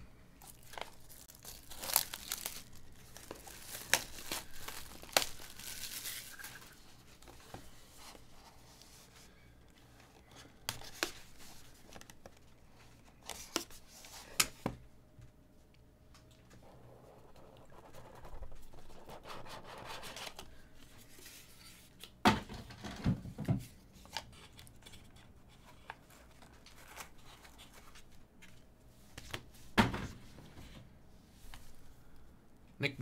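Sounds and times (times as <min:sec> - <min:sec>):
plastic shrink wrap crackling: 0:00.4 - 0:07.3.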